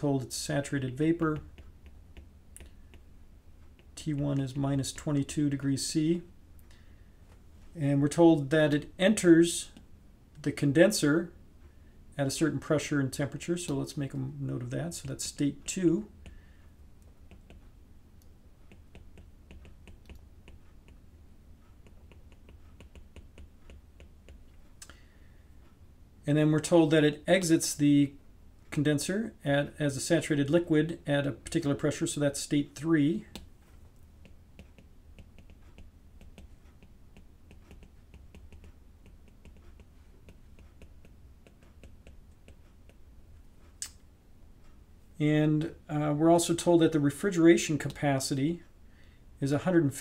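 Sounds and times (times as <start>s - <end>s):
low steady hum: 0.0s - 50.0s
stylus tapping on tablet: 0.8s - 5.1s, 16.2s - 16.5s, 17.1s - 17.7s, 18.6s - 24.6s, 34.2s - 43.7s.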